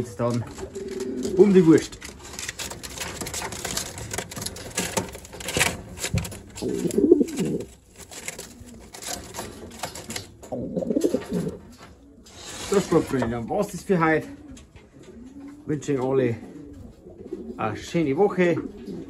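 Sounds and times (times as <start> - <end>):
clicks and rustles: 0.0 - 13.8
pigeons cooing: 0.0 - 19.0.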